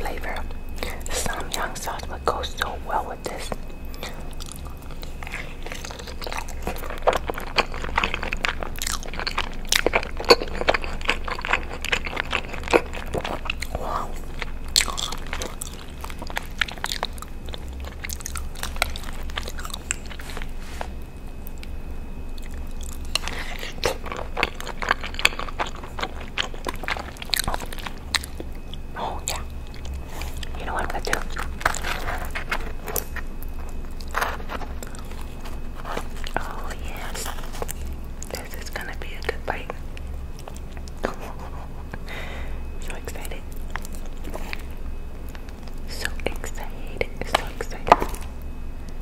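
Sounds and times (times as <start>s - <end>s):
chewing and wet mouth sounds: 0.0s - 49.0s.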